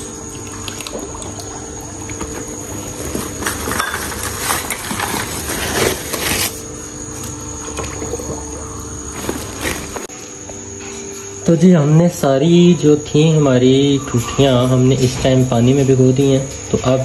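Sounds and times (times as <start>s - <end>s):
water sloshing in plastic tub: 0.0s - 10.1s
steady low hum: 0.0s - 17.0s
plastic sacks rustling: 1.9s - 10.1s.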